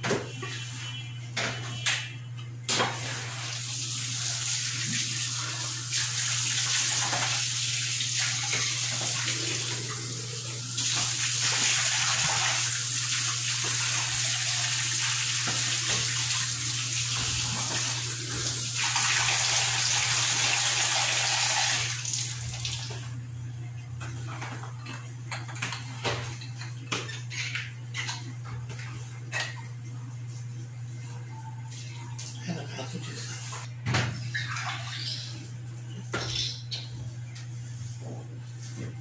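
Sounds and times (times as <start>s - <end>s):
tap water running into sink: 3.0s - 10.1s, 10.7s - 23.1s.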